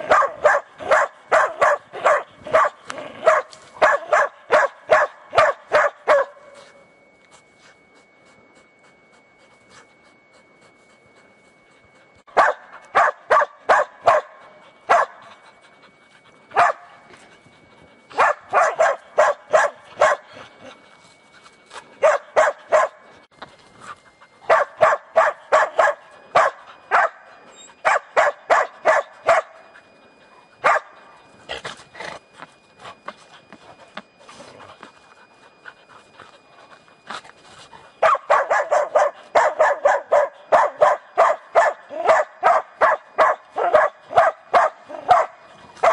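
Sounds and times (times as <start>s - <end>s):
dogs barking: 0.0s - 6.5s, 12.3s - 15.4s, 16.5s - 17.1s, 18.2s - 20.5s, 22.0s - 23.1s, 24.5s - 29.7s, 30.6s - 31.1s, 37.8s - 45.9s.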